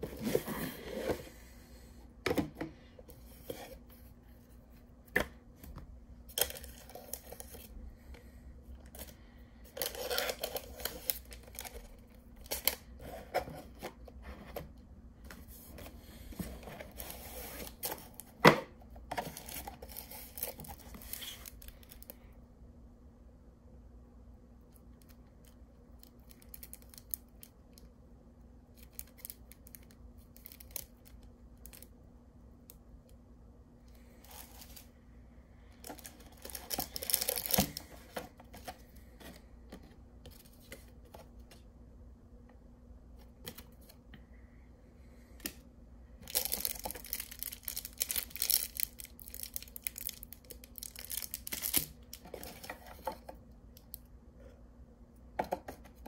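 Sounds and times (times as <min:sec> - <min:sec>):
plastic crinkling: 0:35.8 - 0:38.7, 0:46.2 - 0:53.0.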